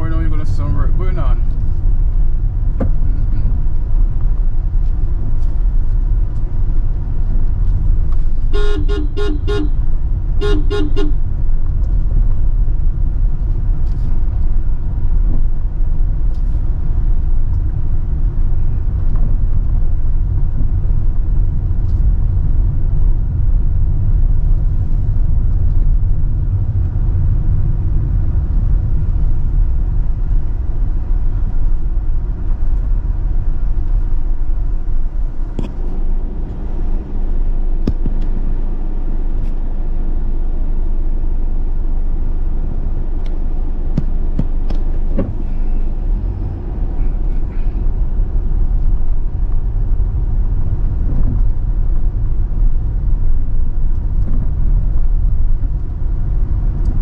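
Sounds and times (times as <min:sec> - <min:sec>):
car rumbling on rough road: 0:00.0 - 0:57.0
two-note car horn beeps: 0:08.5 - 0:09.8, 0:10.4 - 0:11.2.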